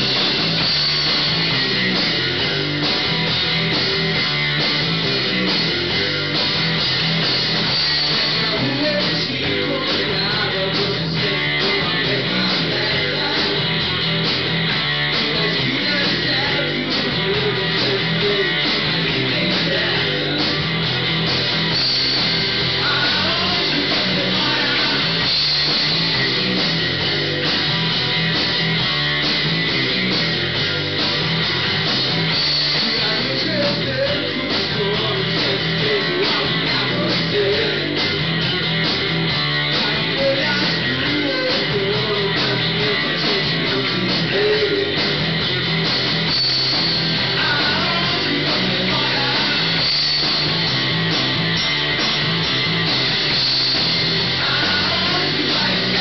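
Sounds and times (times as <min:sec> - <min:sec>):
drum kit: 0:00.0 - 0:56.0
electric bass: 0:00.0 - 0:56.0
electric guitar: 0:00.0 - 0:56.0.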